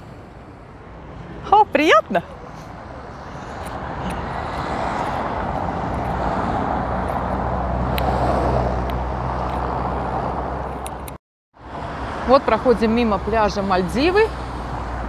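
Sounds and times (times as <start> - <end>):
vehicle passing by: 2.1 - 10.8.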